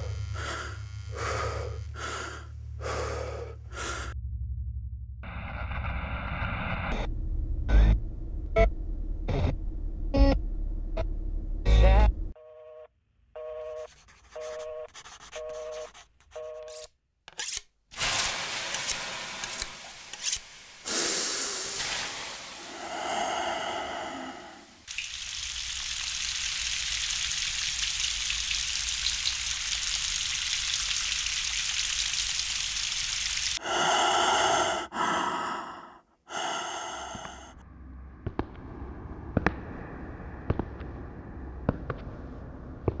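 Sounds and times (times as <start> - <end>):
breathy vocal sounds: 0.0 - 4.2, 20.9 - 24.9, 33.6 - 37.6
long steady hiss: 18.0 - 34.7.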